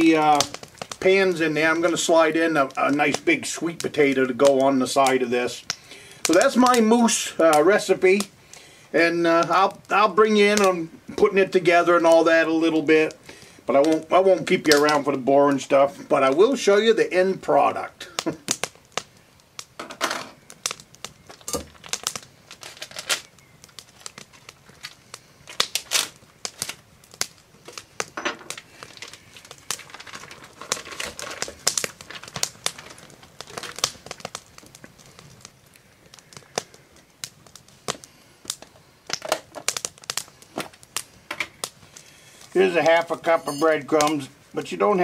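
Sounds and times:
plastic package crinkling: 21.3s - 26.8s, 28.4s - 35.5s.

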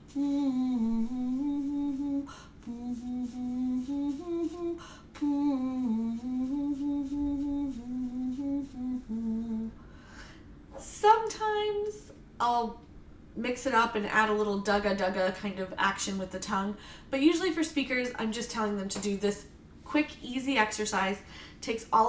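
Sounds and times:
woman humming: 0.0s - 9.8s.

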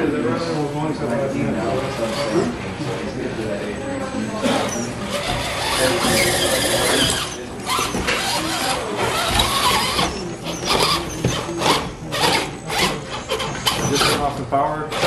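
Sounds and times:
rc car motor whining: 4.4s - 14.2s.

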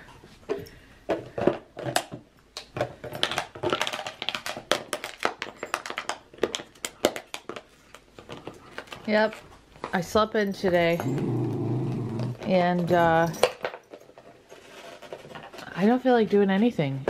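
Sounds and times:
dog chewing plastic bottle: 1.4s - 10.0s.

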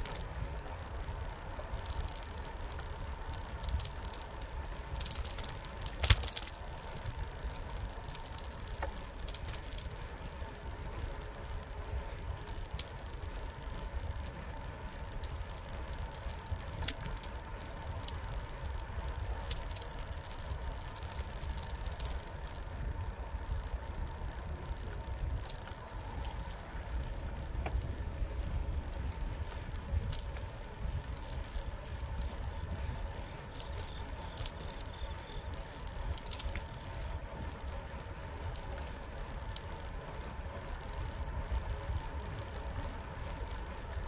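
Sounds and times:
bicycle tyres rumbling on concrete: 0.0s - 44.0s
bike clicks and rattles: 0.0s - 44.0s.

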